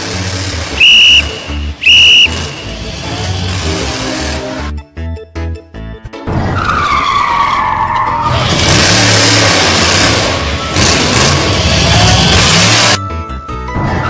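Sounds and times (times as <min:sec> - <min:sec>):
tyre screeching skid: 0:06.3 - 0:10.4.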